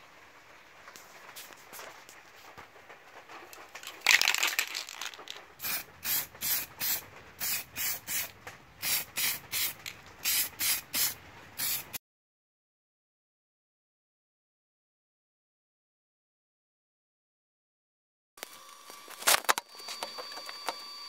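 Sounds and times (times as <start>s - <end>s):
spray paint can hissing: 4.1s - 12.0s.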